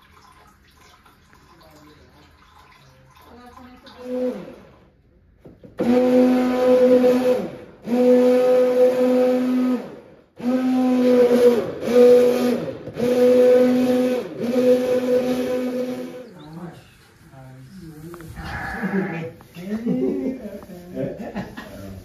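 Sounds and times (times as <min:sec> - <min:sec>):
stick blender motor whine: 0:05.8 - 0:16.3.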